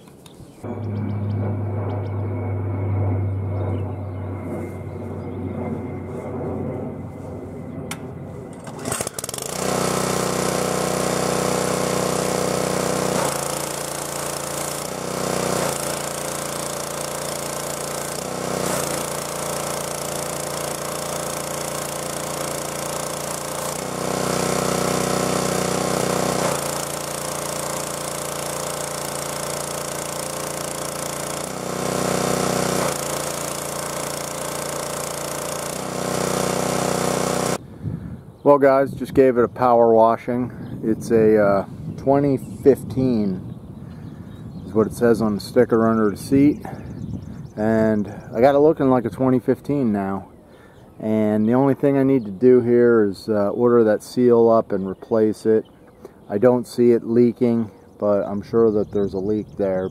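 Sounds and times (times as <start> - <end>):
pressure washer engine running: 7.9 - 37.6.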